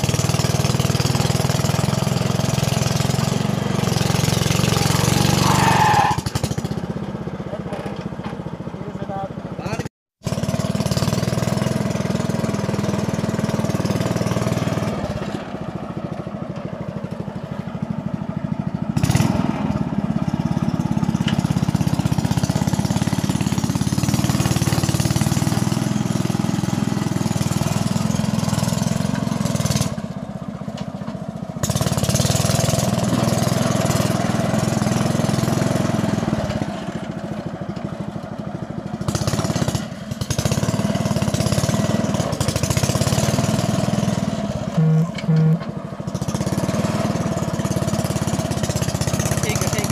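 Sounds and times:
mini tractor engine running: 0.0s - 49.9s.

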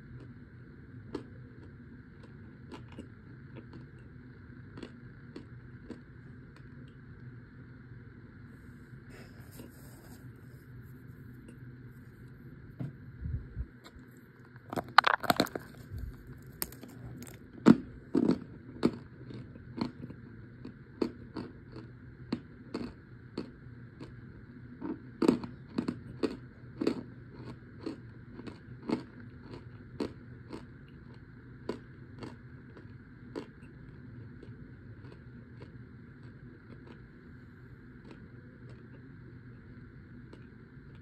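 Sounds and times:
cornstarch chunks crunching when chewed: 0.0s - 7.2s, 13.8s - 41.0s.

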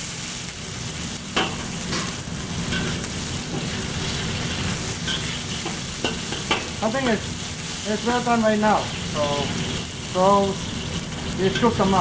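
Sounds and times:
chicken sizzling in a wok: 0.0s - 12.0s
metal spatula scraping a wok: 2.7s - 6.5s.

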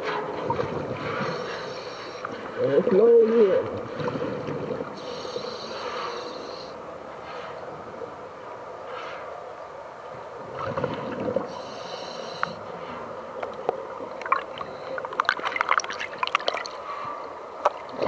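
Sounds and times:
regulator hissing inhalation: 5.0s - 6.8s.

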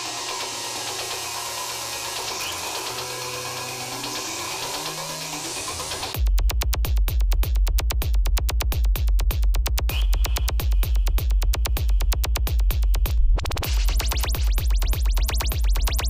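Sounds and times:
fast electronic dance music: 0.0s - 16.0s.

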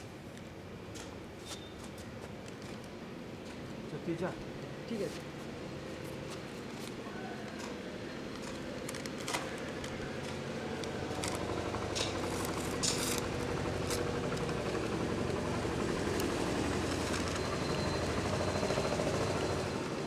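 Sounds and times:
paper envelope ripping: 8.7s - 14.2s.

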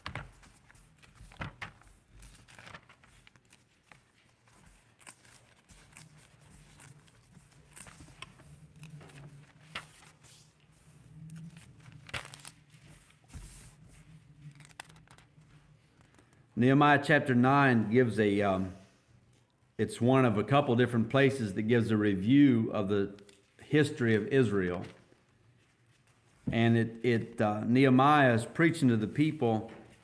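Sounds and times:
thin pages rustling: 0.0s - 16.4s.

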